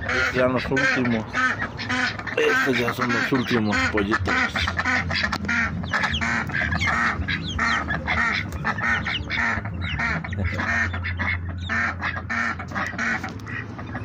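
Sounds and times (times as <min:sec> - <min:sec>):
ducks quacking: 0:00.0 - 0:14.0.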